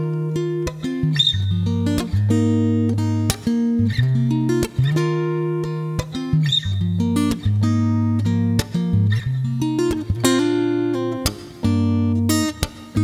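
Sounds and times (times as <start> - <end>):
acoustic guitar chords: 0.0 - 13.0.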